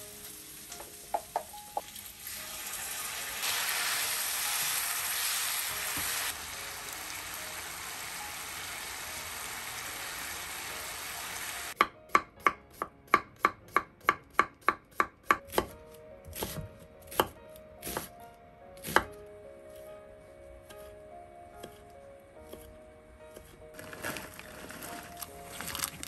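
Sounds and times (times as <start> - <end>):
meat and onions sizzling in a pan: 0.0 - 11.8.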